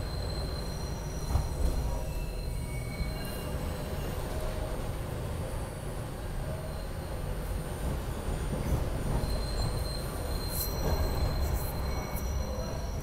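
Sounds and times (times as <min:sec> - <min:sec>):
high wheel squeal: 0:00.0 - 0:04.4, 0:09.0 - 0:13.0
subway wheels on rail rumble: 0:00.0 - 0:13.0.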